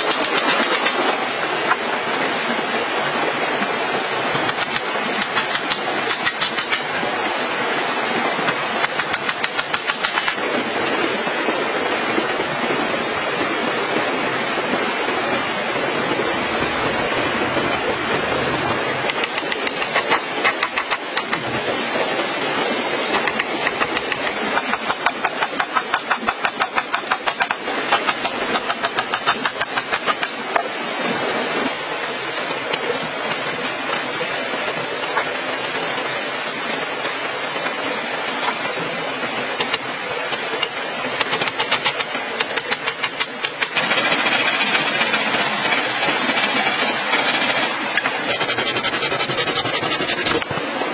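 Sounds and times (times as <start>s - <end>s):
stream rushing: 0.0s - 50.9s
hammer tapping on bamboo: 4.5s - 6.9s, 8.8s - 10.4s, 19.1s - 21.4s, 23.2s - 30.7s, 40.6s - 43.8s.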